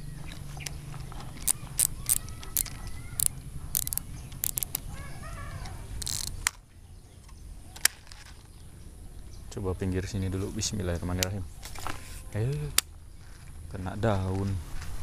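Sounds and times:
fishing reel clicking: 0:01.4 - 0:04.9, 0:06.0 - 0:06.4.

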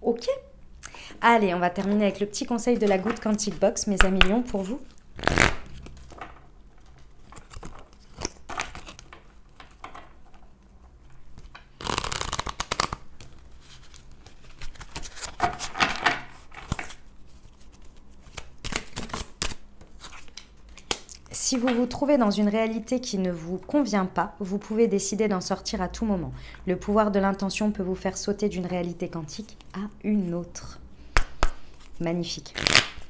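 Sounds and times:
cards shuffling: 0:02.6 - 0:10.0, 0:11.4 - 0:21.1, 0:31.2 - 0:33.0.

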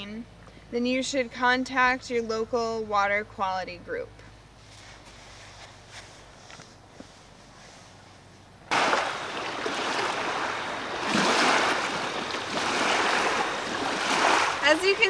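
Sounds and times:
small waves washing on shore: 0:08.7 - 0:15.0.

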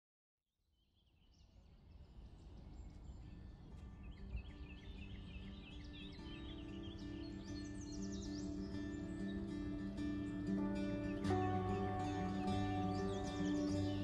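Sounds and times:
small birds chirping: 0:00.8 - 0:14.0
steady music notes: 0:07.0 - 0:14.0.

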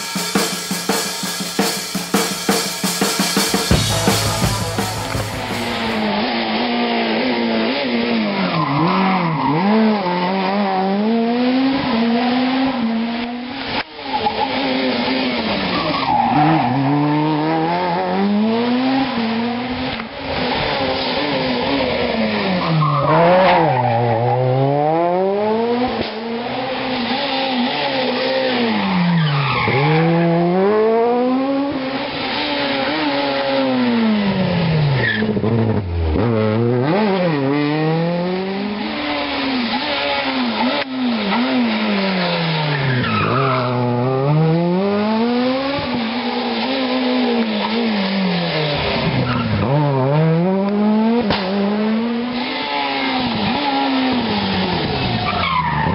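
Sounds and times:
rally car engines revving: 0:00.0 - 0:55.9.

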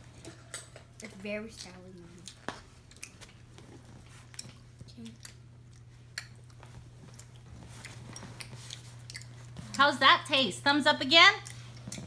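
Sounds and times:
children chewing candy: 0:00.5 - 0:09.8, 0:11.3 - 0:12.0.

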